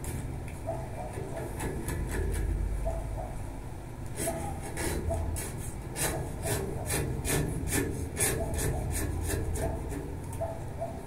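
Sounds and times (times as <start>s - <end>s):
sandpaper scraping metal railing: 1.0s - 2.6s, 4.2s - 10.2s.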